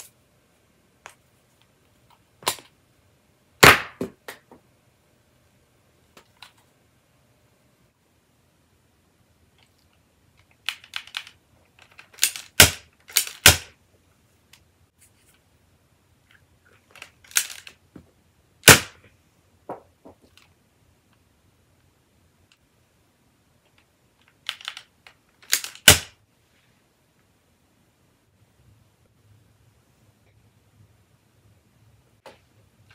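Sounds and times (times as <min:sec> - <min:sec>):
toy pistol plastic clicks: 0:10.6 - 0:13.7, 0:17.0 - 0:17.8, 0:24.2 - 0:26.1
loud plastic snaps: 0:24.2 - 0:26.2.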